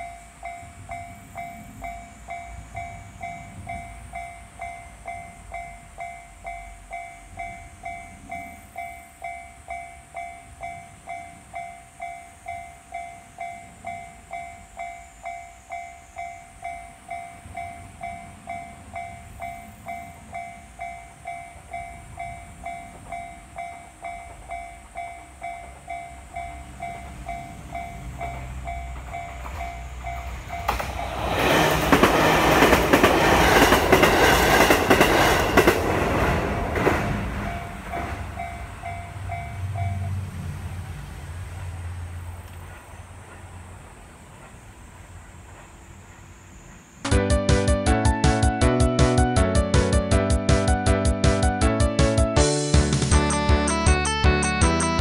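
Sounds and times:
crossing bell two-tone clang: 0.0 - 31.1, 37.4 - 40.2
train wheels rushing on rails: 0.0 - 53.7.

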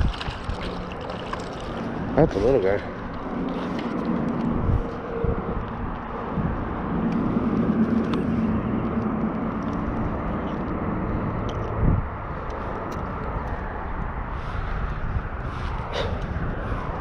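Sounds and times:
faint engine hum: 0.0 - 17.0
road traffic rumble: 0.0 - 17.0.

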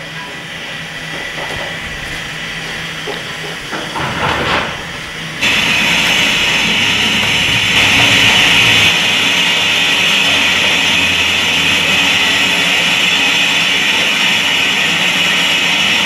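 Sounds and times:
steam locomotive hissing: 0.0 - 16.0
low rumble: 5.4 - 9.2.

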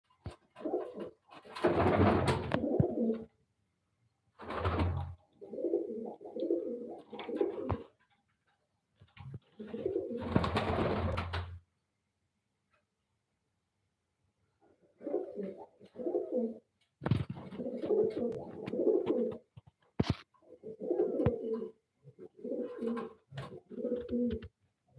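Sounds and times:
pigeon cooing: 2.3 - 3.3, 5.4 - 7.9, 15.0 - 16.6, 17.4 - 19.4, 20.5 - 24.5.

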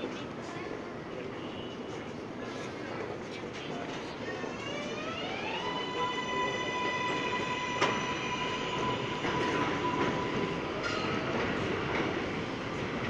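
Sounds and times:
subway train propulsion whine: 0.0 - 13.0.

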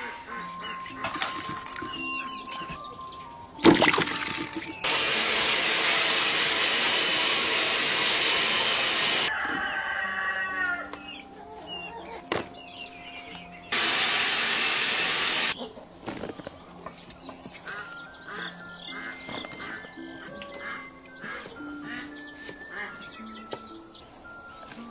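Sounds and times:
rooster crowing: 9.1 - 11.0
loud even hiss: 13.7 - 15.6.

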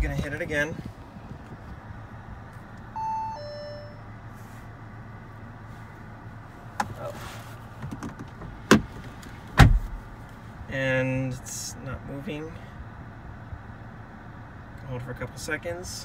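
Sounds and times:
low hum in car cabin: 0.0 - 16.0
two-note falling electronic chime: 3.0 - 4.1.

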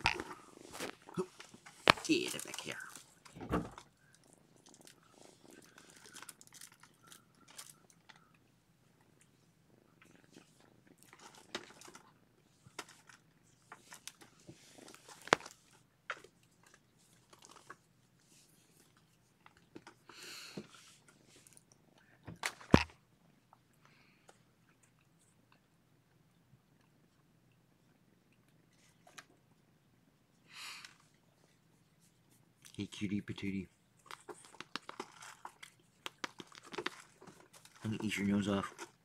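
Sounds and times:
kittens tapping and rustling: 0.0 - 22.9, 33.8 - 39.0.

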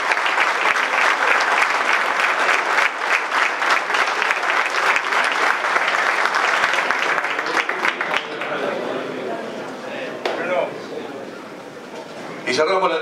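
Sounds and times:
crowd clapping: 0.0 - 9.2.

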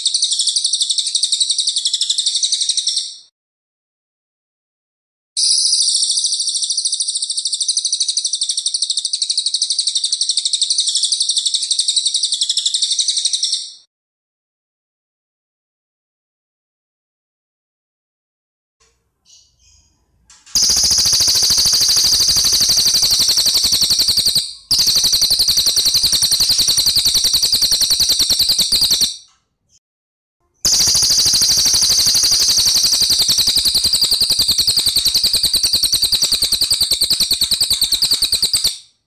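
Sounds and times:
jay calling with rolling rattle: 20.6 - 29.2, 30.7 - 38.8.

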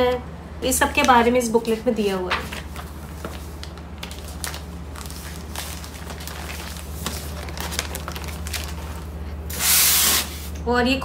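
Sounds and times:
steady low hum: 0.0 - 11.0
plastic and paper crinkling: 2.2 - 9.4.

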